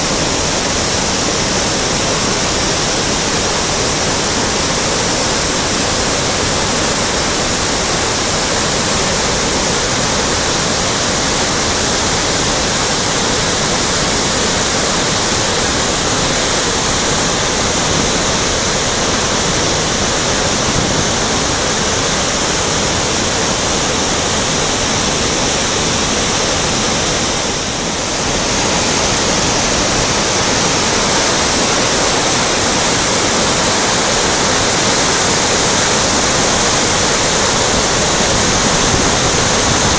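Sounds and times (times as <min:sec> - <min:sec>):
river rushing over boulders: 0:00.0 - 0:39.9.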